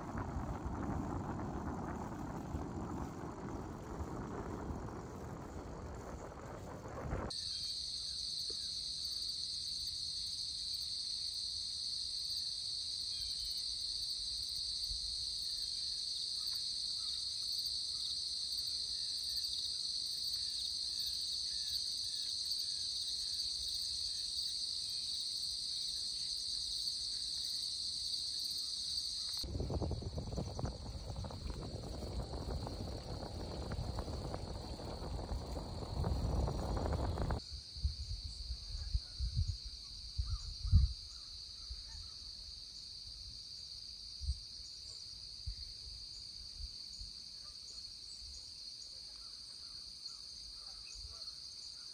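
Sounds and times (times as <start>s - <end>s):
wind rumble on microphone: 0.0s - 7.4s, 29.4s - 41.2s
crickets and insects chirping: 0.0s - 51.9s.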